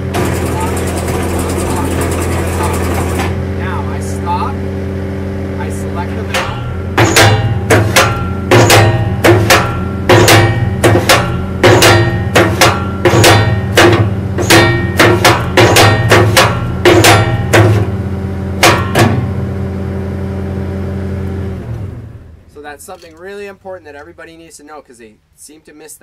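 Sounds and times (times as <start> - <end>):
cement mixer clanking: 0.0 - 3.4, 6.1 - 19.4
skid steer engine drone: 0.0 - 22.6.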